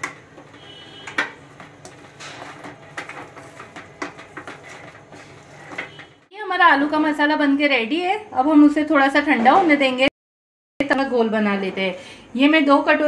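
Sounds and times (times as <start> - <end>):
spatula scraping mashed potato: 0.5 - 6.1.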